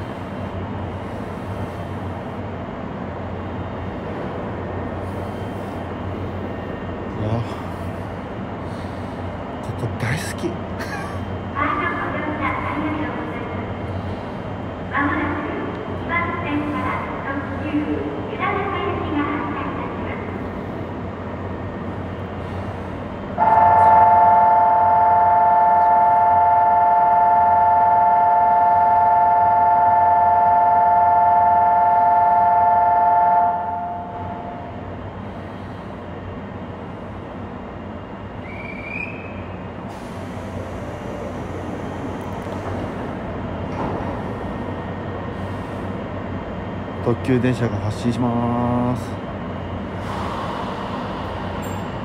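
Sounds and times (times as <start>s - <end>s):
idling train hum: 0.0s - 52.0s
two-note departure buzzer: 23.4s - 34.4s.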